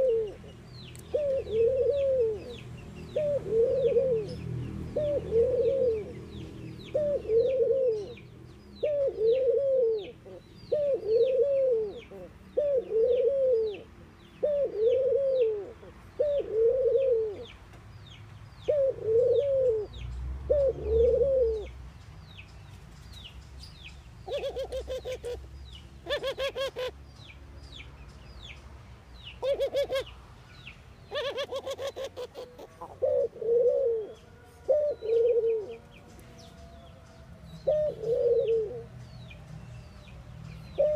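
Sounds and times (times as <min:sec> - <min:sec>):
dove cooing: 0:00.0 - 0:00.5, 0:01.1 - 0:17.5, 0:18.7 - 0:21.8, 0:24.2 - 0:25.4, 0:26.0 - 0:27.0, 0:29.4 - 0:30.1, 0:31.1 - 0:36.0, 0:37.6 - 0:39.0
rapid rattling bird call: 0:31.1 - 0:33.3.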